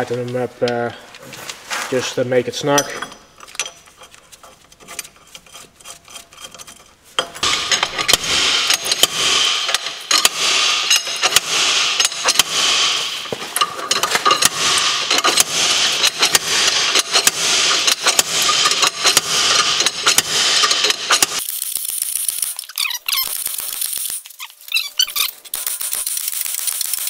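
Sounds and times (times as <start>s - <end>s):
slide hammer metal blows: 7.2s - 21.4s.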